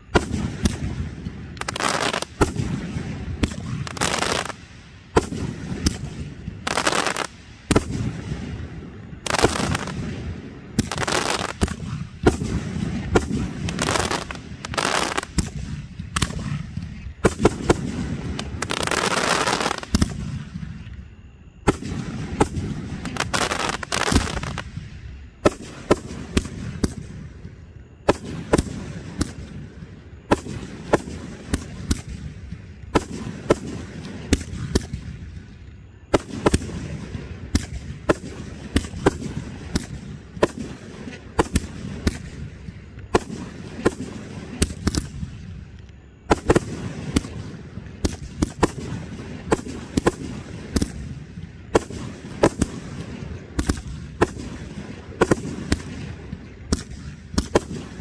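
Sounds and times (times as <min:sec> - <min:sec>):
firework crackle: 0:00.0 - 0:20.8, 0:21.6 - 0:27.3, 0:46.3 - 0:58.0.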